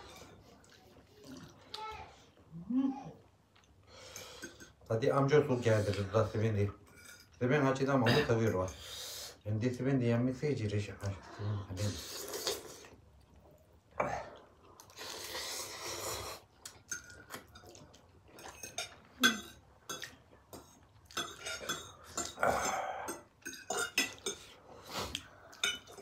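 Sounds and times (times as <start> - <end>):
noodles being slurped: 0.0 - 2.3, 11.8 - 13.0, 14.2 - 17.8.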